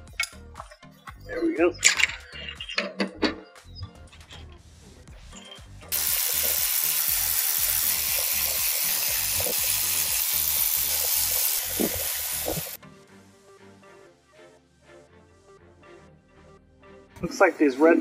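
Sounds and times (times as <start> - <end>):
background music with steady beat: 0.0 - 18.0
loud steady hiss: 5.9 - 12.8.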